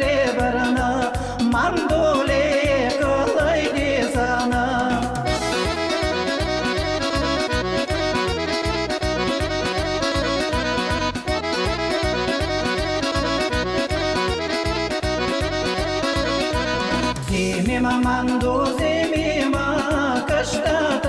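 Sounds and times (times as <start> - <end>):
accordion folk dance music: 0.0 - 21.0.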